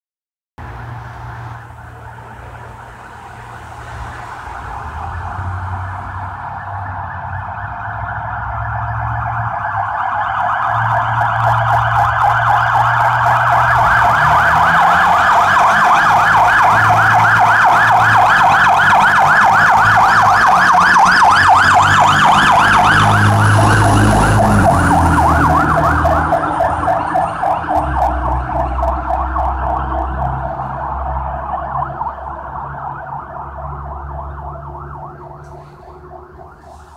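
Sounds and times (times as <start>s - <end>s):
fire engine siren wailing: 0.8s - 36.9s
low engine rumble: 23.5s - 36.9s.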